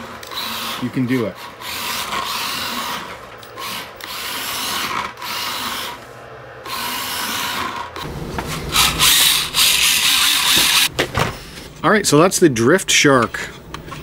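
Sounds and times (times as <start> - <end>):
toy car electric motor whirring: 0.0 - 10.9
louder fuller noise: 5.8 - 10.9.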